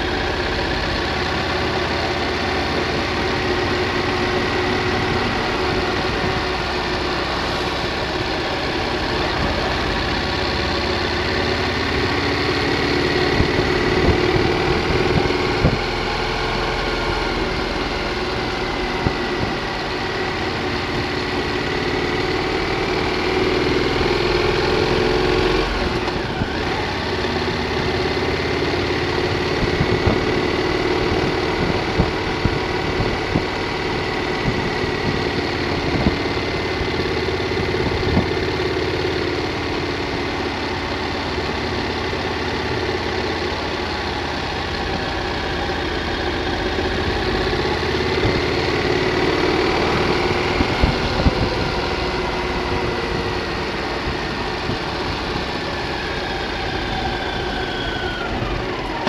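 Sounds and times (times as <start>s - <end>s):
motorcycle engine running: 0.0s - 59.0s
wind noise on microphone: 13.3s - 16.0s, 18.6s - 19.9s, 29.3s - 38.5s, 49.7s - 59.0s.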